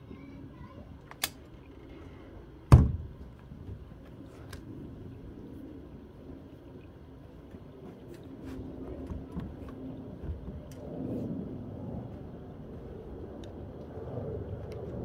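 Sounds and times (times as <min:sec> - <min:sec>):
sharp click: 0:01.1 - 0:01.4
convertible top thumping down: 0:02.7 - 0:03.2.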